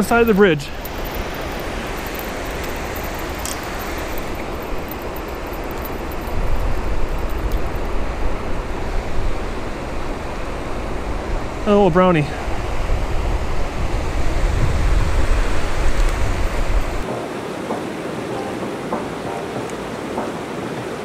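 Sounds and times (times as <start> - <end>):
river water pouring over weir: 0.0 - 10.8.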